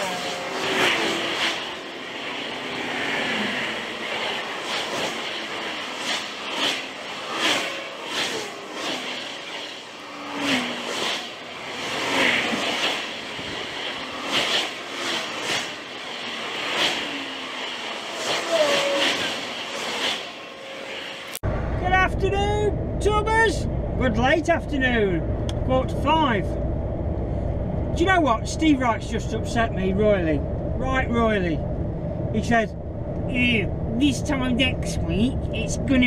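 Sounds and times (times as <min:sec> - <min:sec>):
cars and vans passing: 0:00.0 - 0:23.0.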